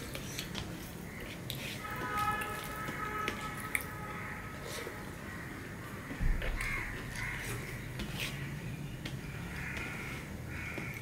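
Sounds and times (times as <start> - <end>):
crow cawing: 5.1 - 7.7, 9.2 - 11.0.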